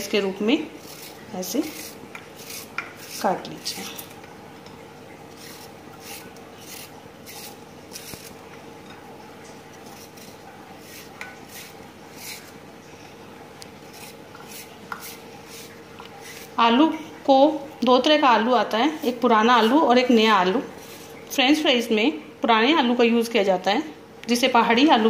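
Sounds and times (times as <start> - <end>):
knife cutting potato: 0.8 - 4.2, 5.4 - 8.4, 9.8 - 12.6, 13.9 - 16.6, 18.9 - 19.9.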